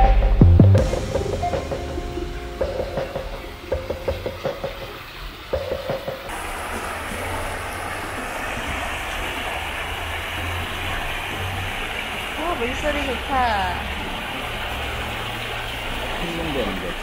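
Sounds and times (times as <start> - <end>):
background music: 0.0 - 6.3
stream rushing over rocks: 6.2 - 17.0.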